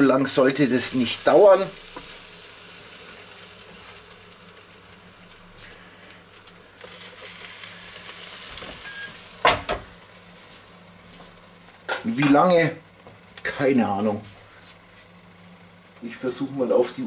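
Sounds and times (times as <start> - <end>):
faint sizzling on grill: 0.0 - 17.0
low steady hum: 0.0 - 17.0
grill lid clunk: 8.6 - 9.9.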